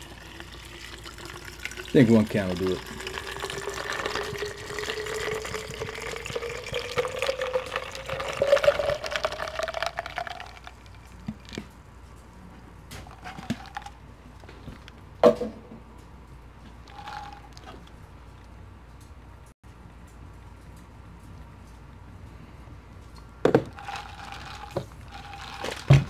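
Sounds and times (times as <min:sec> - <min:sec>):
liquid pouring into plastic bottle: 0:00.0 - 0:11.6, 0:13.1 - 0:13.9, 0:16.7 - 0:17.9, 0:23.5 - 0:26.0.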